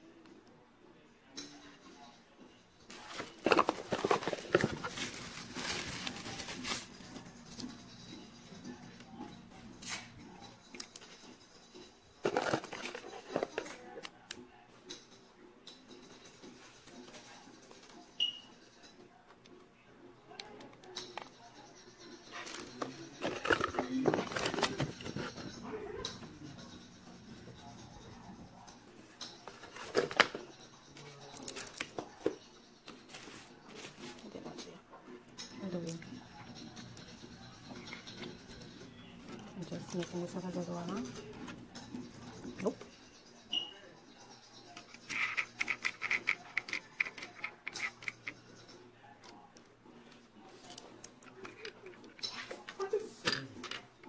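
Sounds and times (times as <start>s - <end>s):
plastic scraping: 3.0s - 7.0s, 12.2s - 14.1s, 22.4s - 26.2s
packaging crinkling and rustling: 3.0s - 7.2s, 12.2s - 13.8s, 23.2s - 25.3s
plastic parts clicking: 12.2s - 14.4s, 44.8s - 48.4s.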